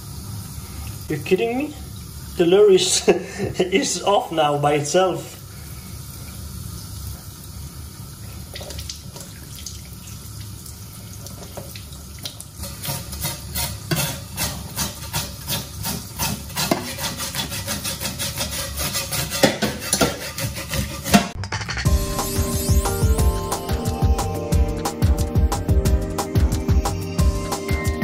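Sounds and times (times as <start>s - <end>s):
tap water running into metal sink: 6.2s - 16.9s
knife scraping fish scales: 12.6s - 21.4s.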